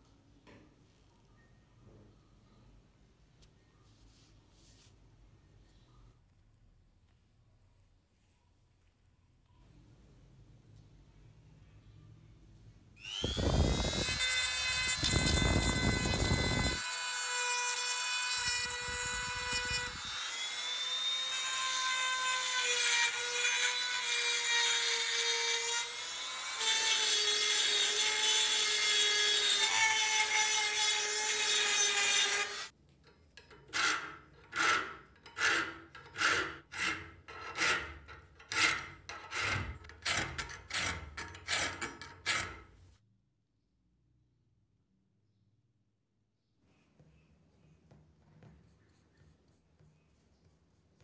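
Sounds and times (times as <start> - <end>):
rotary tool grinding metal: 13.0 - 42.8
hand file rasping metal: 13.2 - 42.8.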